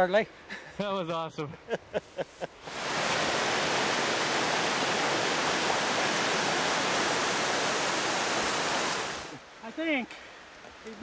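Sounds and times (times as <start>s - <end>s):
fast-flowing creek water: 2.6s - 9.4s.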